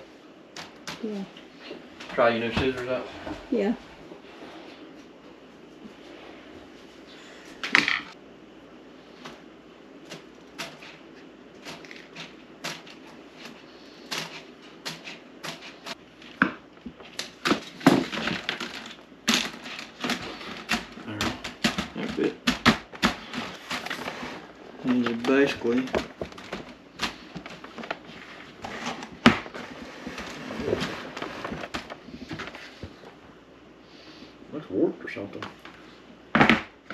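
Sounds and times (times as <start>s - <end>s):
plastic parts clicking and rattling: 17.1s - 24.0s.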